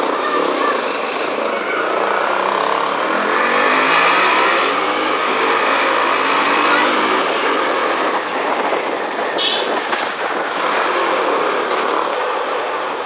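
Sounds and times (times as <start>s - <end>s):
motorcycle engine: 0.0s - 8.9s
wind noise on microphone: 0.0s - 13.0s.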